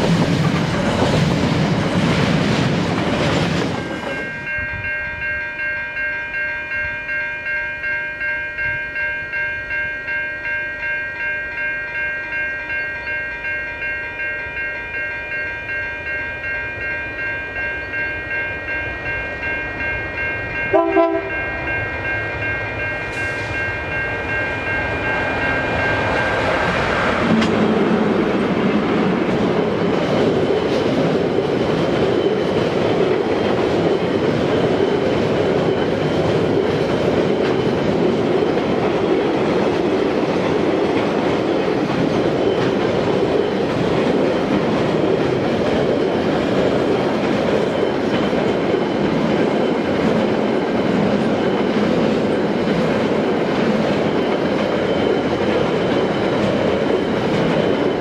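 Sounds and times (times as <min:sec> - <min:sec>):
train wheels clattering on rails: 0:00.0 - 0:04.9, 0:19.8 - 0:58.0
electric locomotive high tones: 0:03.6 - 0:39.2
train horn blast: 0:20.7 - 0:21.6.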